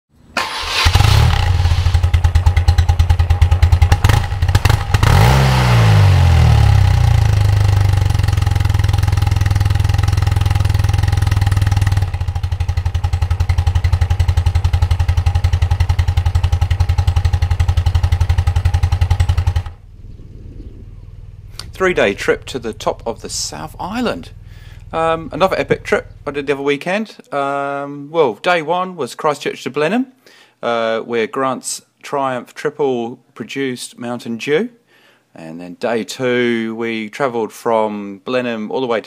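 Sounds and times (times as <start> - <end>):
motorcycle engine idling: 0.8 - 26.5.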